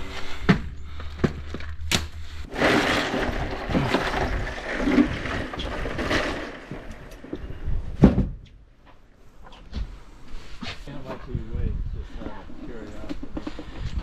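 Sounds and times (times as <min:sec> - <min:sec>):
ice and water sloshing and rattling: 0:00.9 - 0:07.6, 0:12.6 - 0:14.0.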